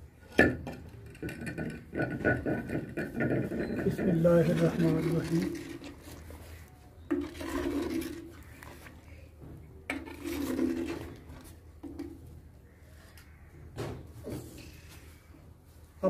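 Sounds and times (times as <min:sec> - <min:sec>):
ladle scraping clay pot: 0:00.8 - 0:09.2, 0:09.9 - 0:12.2.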